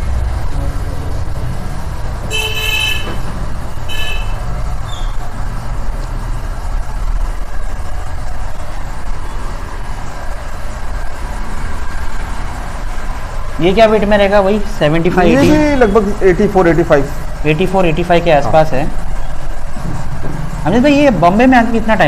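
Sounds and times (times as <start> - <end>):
low traffic rumble: 0.0 - 22.0
vehicle horn honking: 2.3 - 4.5.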